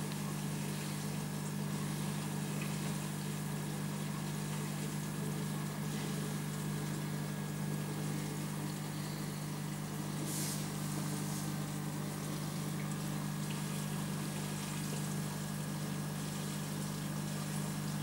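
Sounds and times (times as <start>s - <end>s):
aquarium pump humming: 0.0s - 18.0s
watery hiss: 10.2s - 11.6s.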